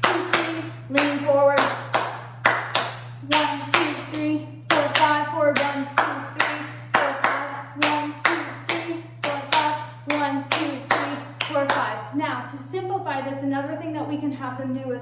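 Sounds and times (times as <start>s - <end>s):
hand clapping: 0.0s - 12.0s.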